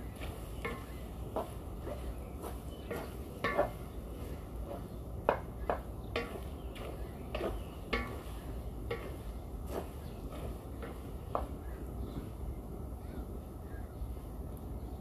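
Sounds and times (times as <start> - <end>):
spatula scraping a metal wok: 0.1 - 11.0.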